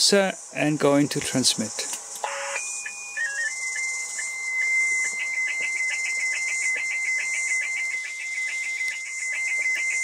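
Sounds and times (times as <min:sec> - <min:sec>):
radio hiss: 0:00.0 - 0:02.6
pulsing high data tone: 0:01.6 - 0:10.0
stepping start-up tone: 0:02.3 - 0:10.0.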